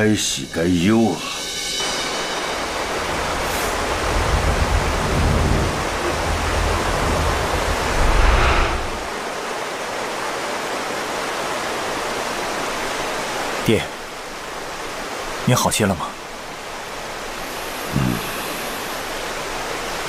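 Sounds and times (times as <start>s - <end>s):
rushing water: 0.0s - 20.0s
deep rumble: 4.1s - 9.2s.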